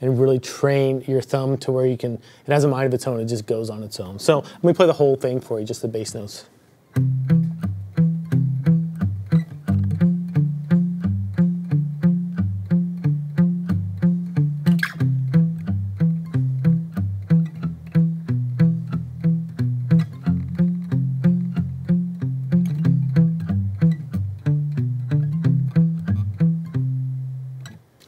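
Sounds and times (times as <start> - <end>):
acoustic guitar fingerpicking: 6.9 - 28.0.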